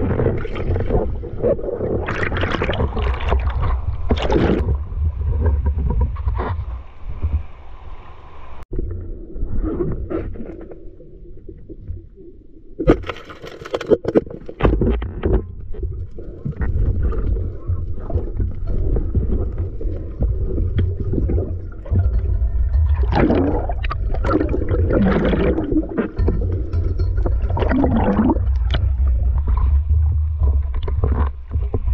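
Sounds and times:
water bubbling and gurgling: 0.0s - 6.7s, 14.2s - 31.9s
muffled underwater rumble: 0.0s - 13.0s, 14.5s - 31.9s.

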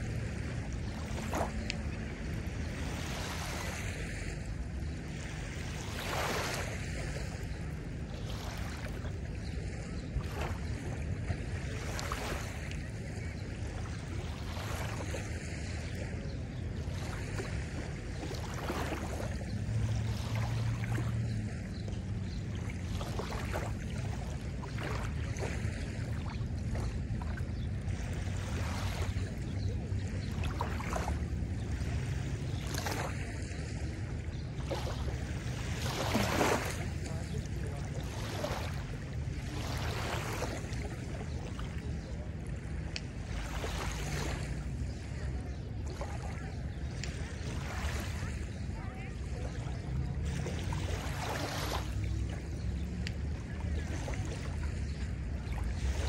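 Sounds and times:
steady low rumble: 0.0s - 56.0s
waves lapping onto sandy shore: 0.0s - 56.0s.

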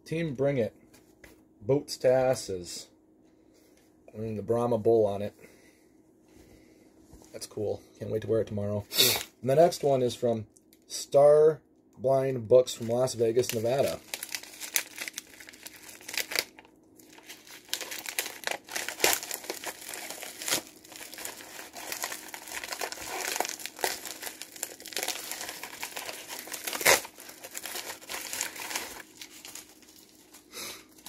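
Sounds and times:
paper envelope tearing and crinkling: 13.3s - 31.0s.

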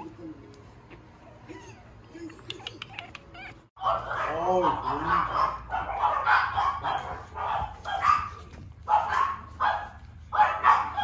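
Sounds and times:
puppies yipping and whimpering: 0.8s - 4.0s.

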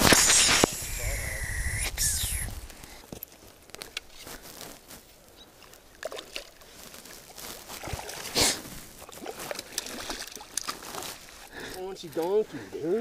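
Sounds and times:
water splashing and sloshing: 5.9s - 12.3s.

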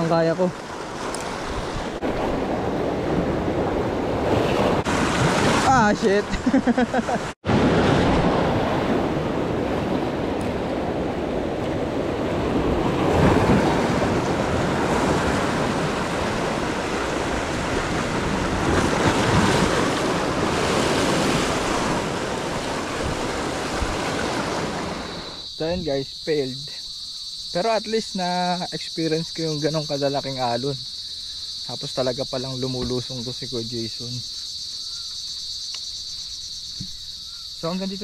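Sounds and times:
ocean surf breaking on rocks: 0.0s - 25.9s.

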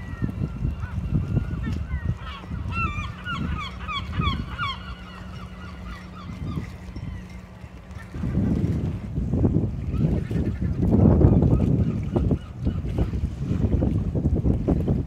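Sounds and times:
flock of birds calling: 0.1s - 8.1s.

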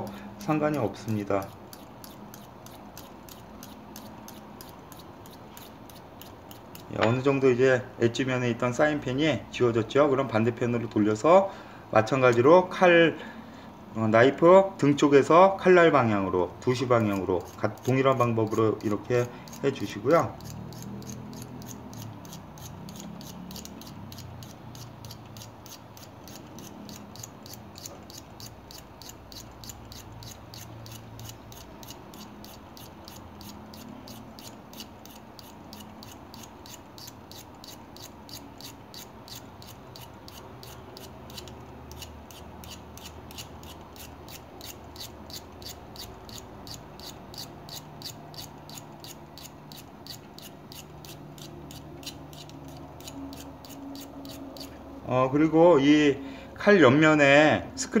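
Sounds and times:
file rasping on knife blade: 0.0s - 7.1s, 16.7s - 54.8s.

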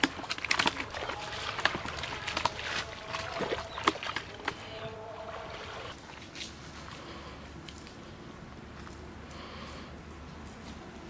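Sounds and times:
fish thrashing and splashing: 0.0s - 6.5s.

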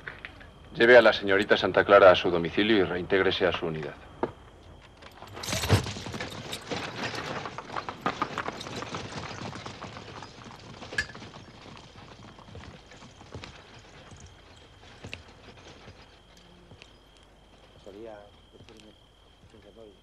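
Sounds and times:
horse hooves clip-clopping: 4.1s - 20.0s.

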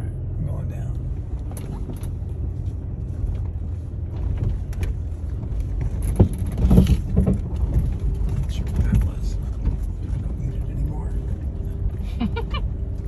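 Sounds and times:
engine and drivetrain rumble: 0.0s - 13.0s
knocks and rattles: 3.4s - 11.6s.

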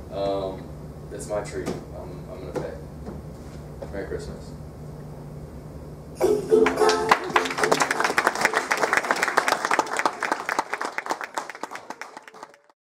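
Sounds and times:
held pitched tone: 6.2s - 7.8s
audience applauding: 6.6s - 12.8s.

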